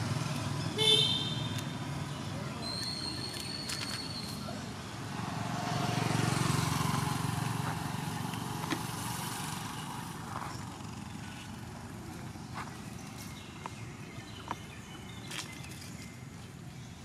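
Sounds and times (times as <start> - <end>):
vehicle passing on road: 0.0 - 15.2.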